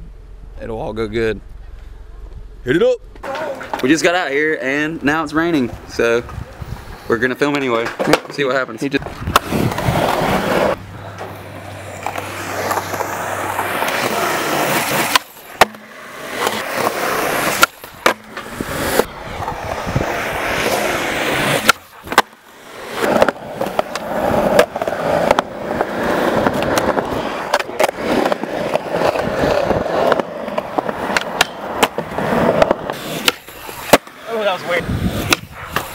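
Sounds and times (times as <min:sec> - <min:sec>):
skateboard wheels rolling on concrete: 0:01.1 - 0:35.9
skateboard clacking on concrete: 0:07.5 - 0:11.3, 0:11.9 - 0:34.4.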